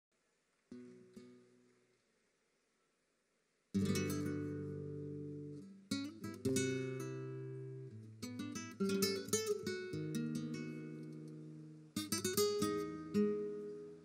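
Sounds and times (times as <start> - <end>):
flamenco guitar strumming: 0.7 - 1.7, 3.8 - 14.0.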